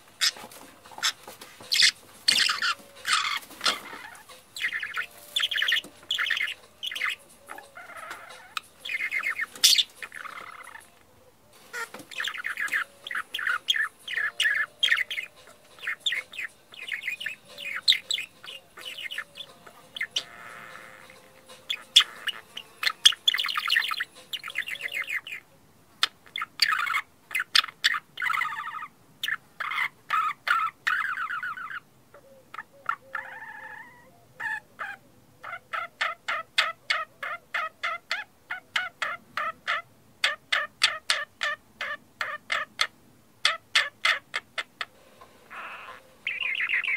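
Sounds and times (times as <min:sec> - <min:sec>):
budgerigars chirping: 0:00.2 - 0:11.0, 0:11.6 - 0:31.9, 0:32.5 - 0:46.9.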